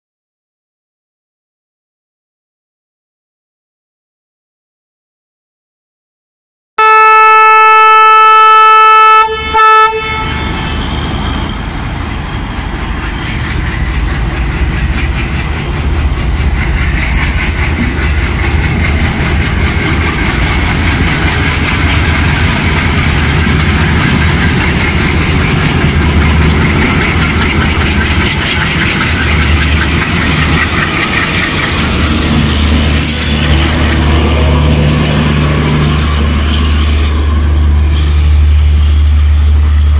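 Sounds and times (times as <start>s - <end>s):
locomotive horn blasts: 6.8s - 11.0s
locomotive diesel engines droning: 6.8s - 39.9s
train wheels rumbling on rails: 9.2s - 39.9s.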